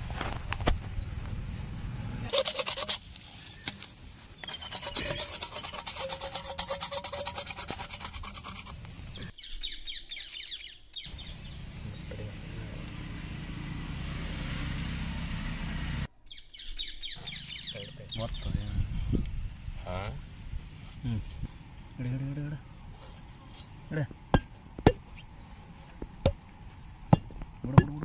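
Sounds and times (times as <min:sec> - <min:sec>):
saw blade scraping plastic pipe: 0:02.3 - 0:03.4, 0:04.4 - 0:08.8.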